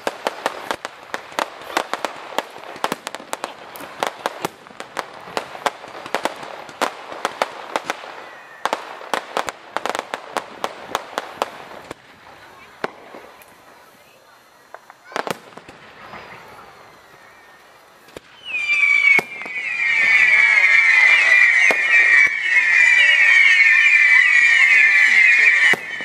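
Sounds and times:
fireworks cracking and popping: 0:00.0 - 0:26.0.

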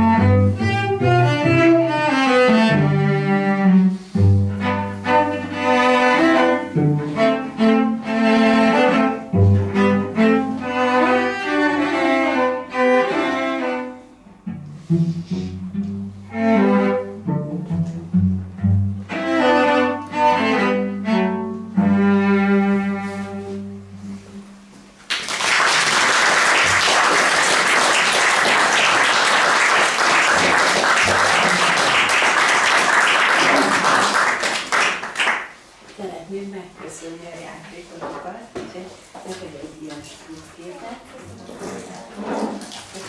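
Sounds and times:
cello duet: 0:00.0 - 0:24.8
audience applauding: 0:25.1 - 0:35.6.

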